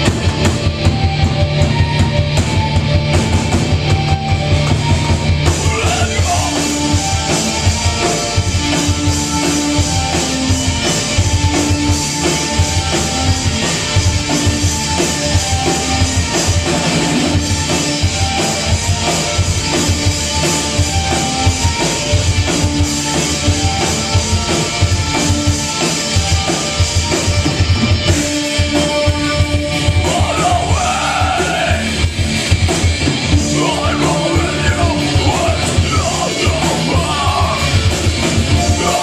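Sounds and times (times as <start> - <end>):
live rock band playing: 0.0 - 39.0
person singing: 5.6 - 6.9, 30.0 - 31.9, 33.4 - 37.9, 38.5 - 39.0.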